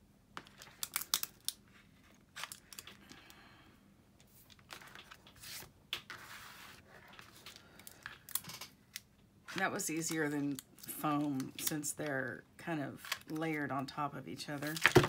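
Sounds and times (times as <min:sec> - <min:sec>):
paper rustling and crinkling: 0:04.2 - 0:08.7, 0:14.6 - 0:15.0.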